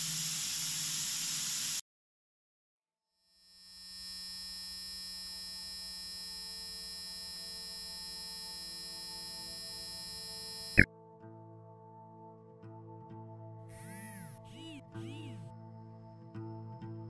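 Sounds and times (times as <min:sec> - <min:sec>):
electronic hum with high whine: 0:00.0 - 0:01.8, 0:03.3 - 0:10.9.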